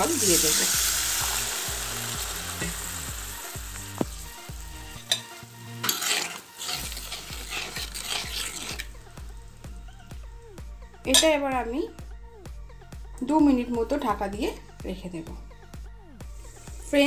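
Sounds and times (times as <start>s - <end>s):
food sizzling in a pan: 0.0s - 9.7s
metal spatula scraping a pan: 5.8s - 8.9s.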